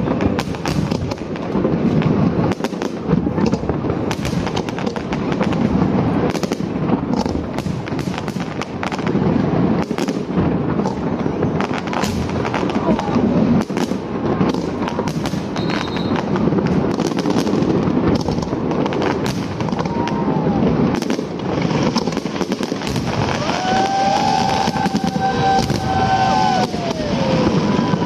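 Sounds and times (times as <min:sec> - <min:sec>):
fireworks bangs and crackles: 0:00.0 - 0:28.0.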